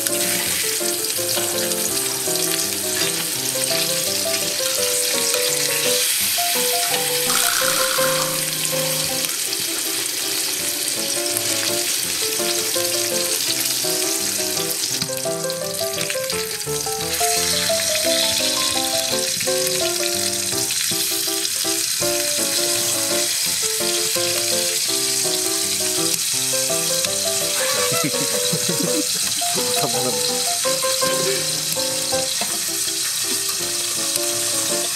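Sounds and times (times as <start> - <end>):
steaks sizzling in skillet: 0.0 - 34.9
background music: 26.1 - 32.4.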